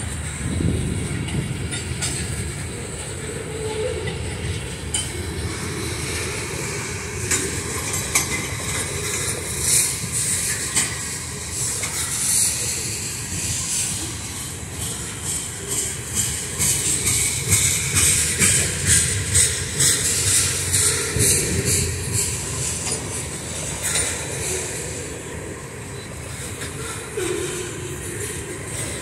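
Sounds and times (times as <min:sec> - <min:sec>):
freight train rolling past: 0:00.0 - 0:29.0
train wheels clicking and clanking: 0:00.0 - 0:29.0.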